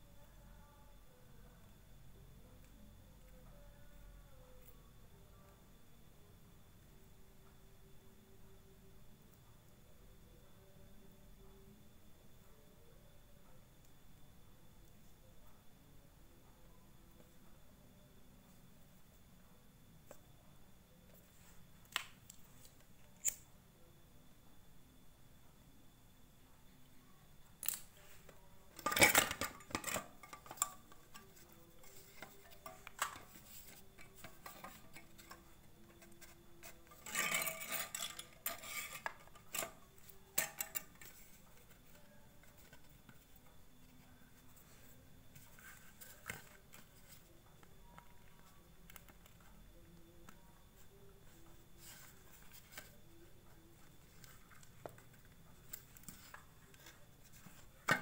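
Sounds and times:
parts clattering: 0:27.6 - 0:43.2, 0:53.8 - 0:58.0.

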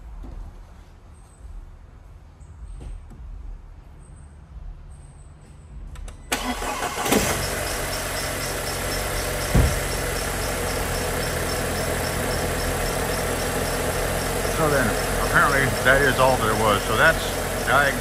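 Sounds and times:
car engine idling: 0:06.3 - 0:18.0
starter cranking: 0:06.3 - 0:18.0
thump: 0:09.4 - 0:09.9.

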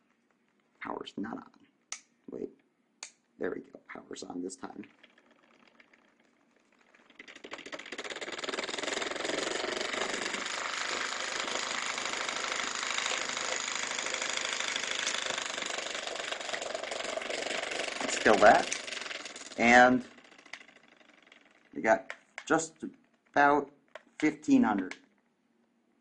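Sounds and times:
electric motor clicking and buzzing: 0:04.8 - 0:23.3.

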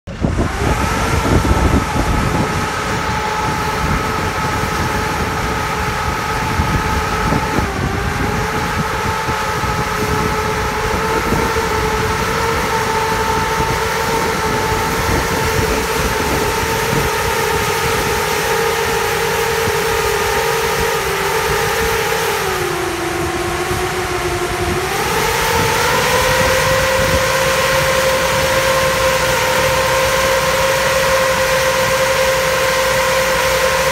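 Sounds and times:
tractor engine rumble: 0:00.0 - 0:25.2
vacuum machine whine: 0:00.1 - 0:33.9.

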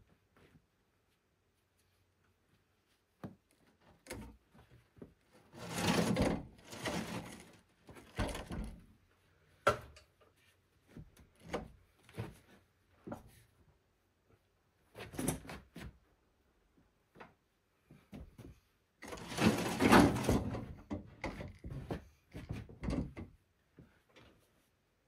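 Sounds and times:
rubbing scrape: 0:05.5 - 0:07.5, 0:19.0 - 0:20.4.

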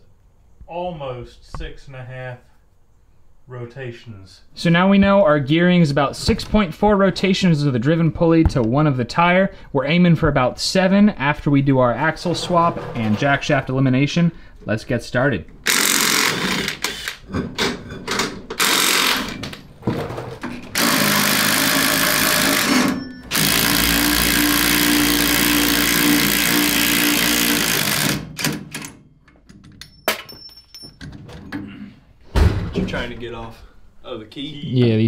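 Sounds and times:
impact driver hammering: 0:20.8 - 0:28.8.

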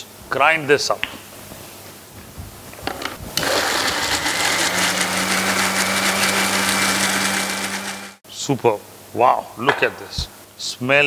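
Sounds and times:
mixer grinder running: 0:03.4 - 0:08.2.

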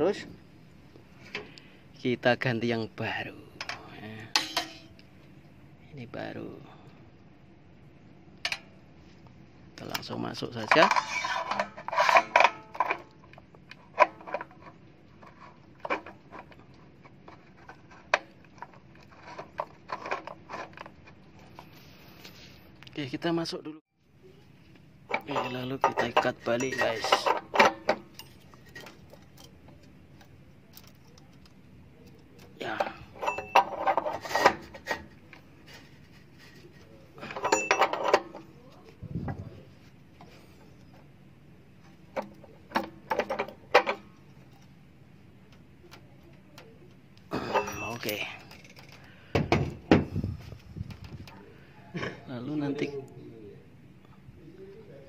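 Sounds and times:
metal parts clicking and knocking: 0:09.8 - 0:21.6, 0:25.1 - 0:38.6, 0:42.1 - 0:44.8, 0:45.4 - 0:50.1
ringing metal clink: 0:33.1 - 0:33.9, 0:37.2 - 0:38.4, 0:47.4 - 0:48.7.

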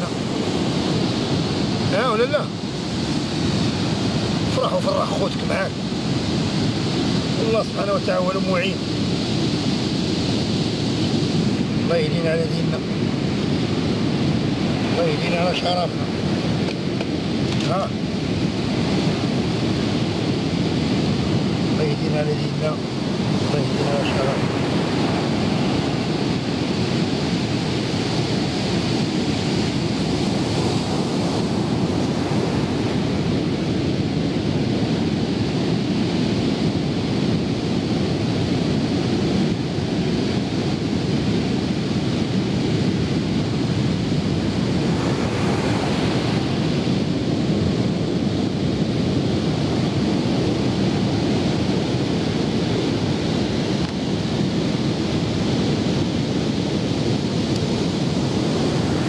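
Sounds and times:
surf breaking: 0:00.0 - 0:33.7
wind buffeting microphone: 0:00.0 - 0:59.0.

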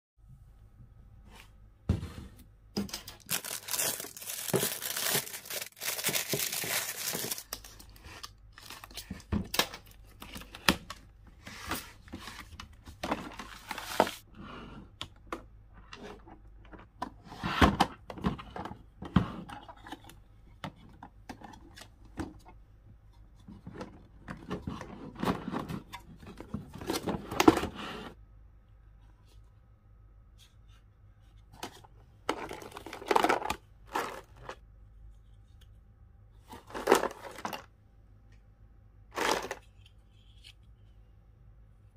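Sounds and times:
packaging tearing and crinkling: 0:03.0 - 0:09.8.

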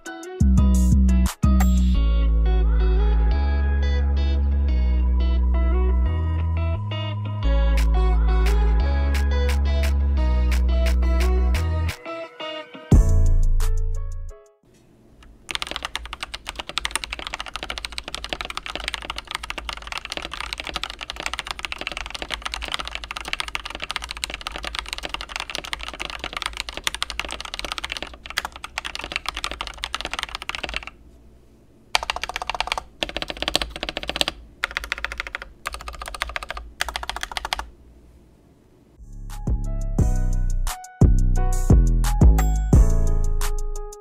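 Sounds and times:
mechanical keyboard typing: 0:15.5 - 0:31.0, 0:32.0 - 0:37.7.

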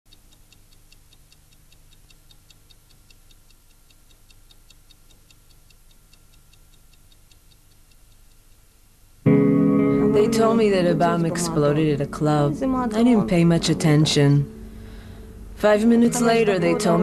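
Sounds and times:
fast faint ticking: 0:00.1 - 0:08.6
low steady hum: 0:00.1 - 0:17.0.

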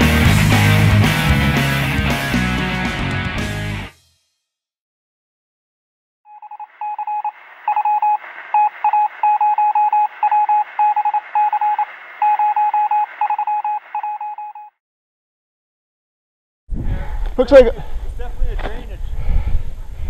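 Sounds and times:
phone keypad beeps: 0:06.3 - 0:14.7.

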